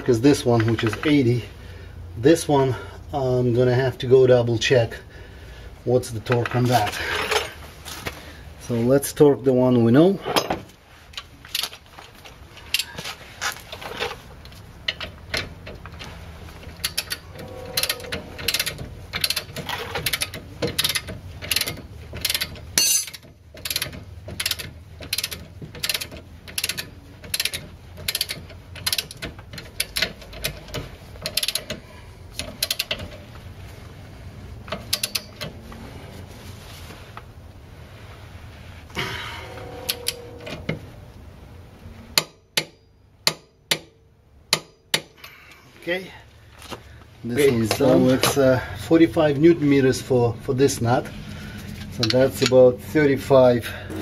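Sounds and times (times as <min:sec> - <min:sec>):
ratchet clicking: 0:16.8 - 0:17.2, 0:17.8 - 0:33.2, 0:34.7 - 0:35.5.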